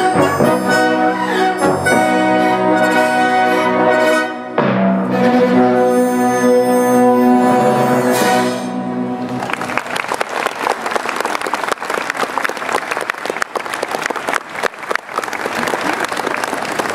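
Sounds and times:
audience applause: 0:09.2 - 0:16.9.

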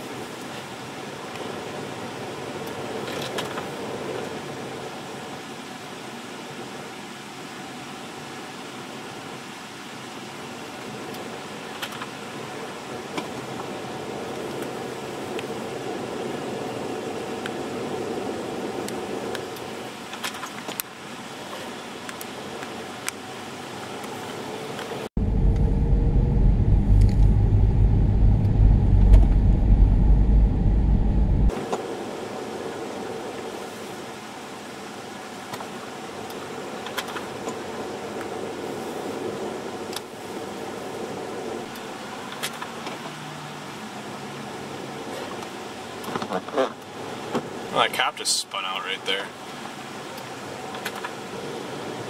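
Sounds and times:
deep rumble of car on highway: 0:25.2 - 0:31.5
car running inside cabin: 0:25.2 - 0:31.6.

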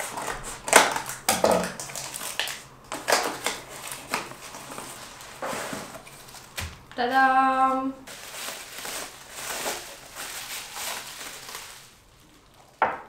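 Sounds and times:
scissors cutting packing tape: 0:00.0 - 0:04.3
bubble wrap crinkling: 0:00.0 - 0:12.8.

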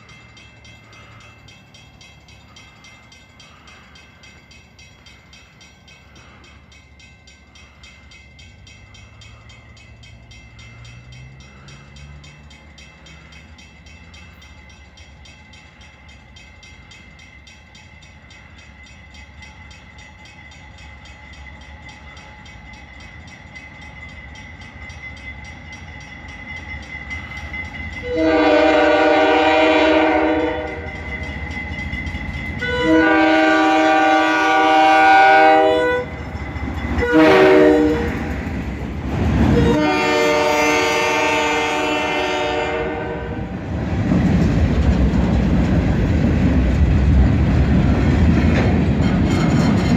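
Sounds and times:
diesel locomotive rumbling: 0:00.0 - 0:49.9
locomotive air horn blasts: 0:28.0 - 0:30.9, 0:32.6 - 0:36.2, 0:37.0 - 0:38.2, 0:39.5 - 0:43.6.

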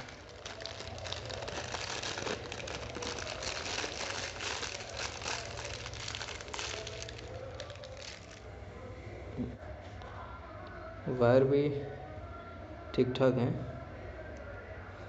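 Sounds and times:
plastic wrapping crinkling: 0:00.0 - 0:08.5.

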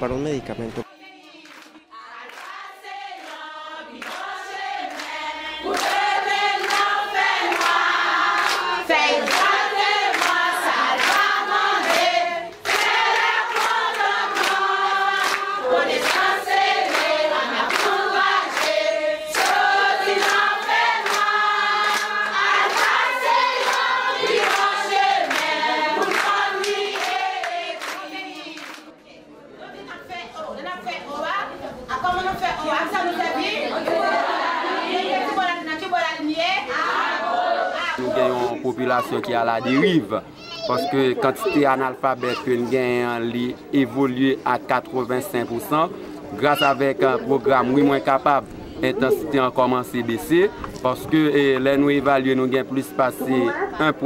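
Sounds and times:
group singing in chorus: 0:00.8 - 0:29.9, 0:32.4 - 0:39.4
rhythmic clapping: 0:01.0 - 0:28.9.

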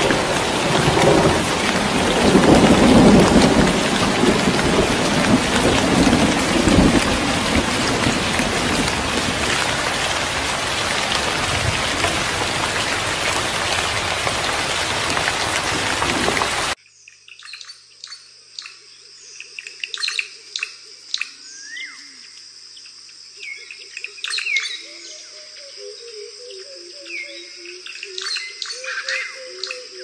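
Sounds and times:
heavy rain falling: 0:00.0 - 0:16.8
thunder rolling: 0:00.0 - 0:16.8.

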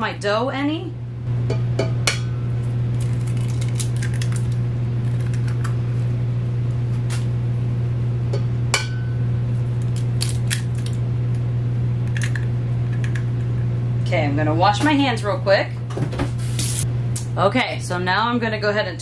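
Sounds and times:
low hum: 0:00.0 - 0:19.0
eggs cracking against metal bowl: 0:01.5 - 0:05.8, 0:09.8 - 0:11.4, 0:12.0 - 0:13.7.

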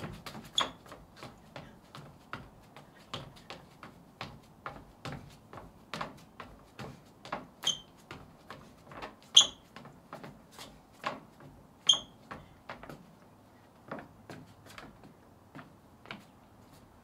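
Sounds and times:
footsteps on wooden deck: 0:00.0 - 0:17.0
short high squeaks: 0:00.5 - 0:00.9, 0:07.6 - 0:08.0, 0:09.3 - 0:09.7, 0:11.8 - 0:12.2.

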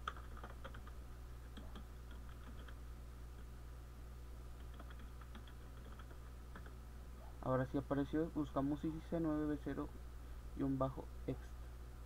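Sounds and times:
keyboard typing clicks: 0:00.0 - 0:02.8, 0:04.6 - 0:06.8
steady low hum: 0:00.0 - 0:12.0.

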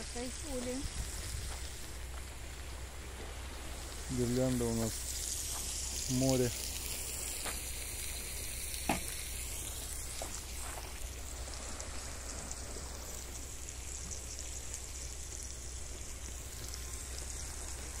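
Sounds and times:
steady hissing noise: 0:00.0 - 0:18.0.

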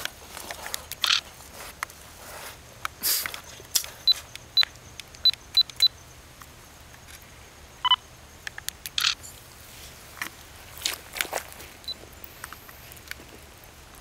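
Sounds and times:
camera clicks: 0:00.0 - 0:01.3, 0:08.4 - 0:09.2.

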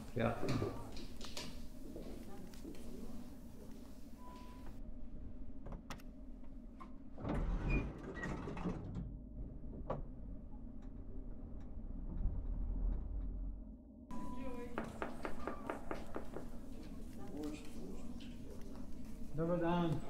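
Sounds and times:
lift doors sliding shut: 0:07.2 - 0:09.1.

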